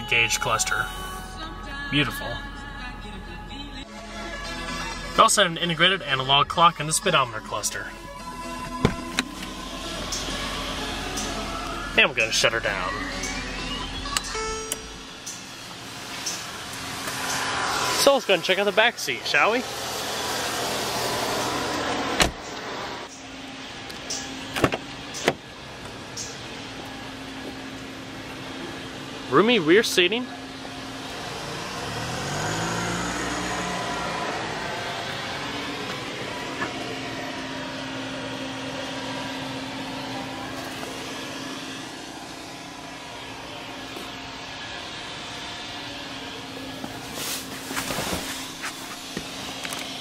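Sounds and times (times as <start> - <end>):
car door shutting thud: 8.7 - 9.3, 22.2 - 22.4, 24.5 - 25.4.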